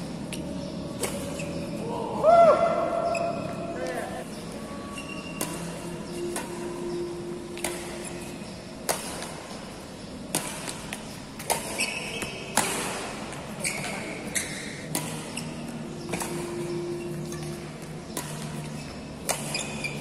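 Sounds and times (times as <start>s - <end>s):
racket striking shuttlecock: 0.1s - 1.8s, 5.0s - 20.0s
shoe squeaks on court: 1.0s - 1.8s, 3.0s - 3.7s, 4.9s - 6.3s, 11.5s - 12.7s, 13.6s - 17.6s, 18.5s - 20.0s.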